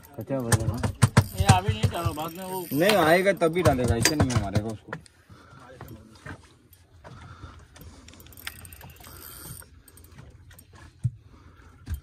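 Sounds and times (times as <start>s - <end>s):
fishing reel clicking and whirring: 0.0s - 4.7s, 7.6s - 10.8s.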